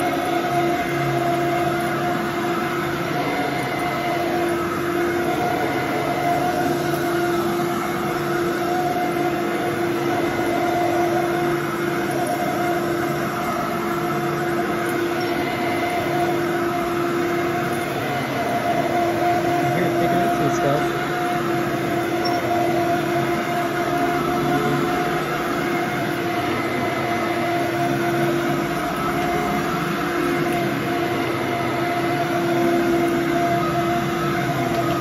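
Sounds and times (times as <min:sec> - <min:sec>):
vacuum cleaner running on carpet: 0:00.0 - 0:35.0.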